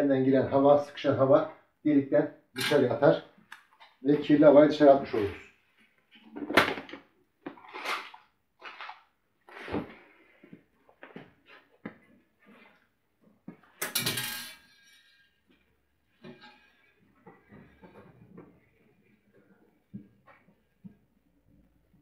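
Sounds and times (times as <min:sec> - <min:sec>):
ringing tool clatter: 0:13.9 - 0:15.4.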